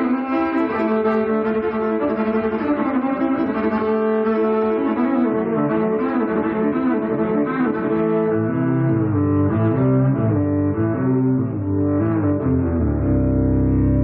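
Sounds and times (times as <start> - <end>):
electric violin melody: 0.0 - 14.0
deep bass layer: 7.8 - 14.0.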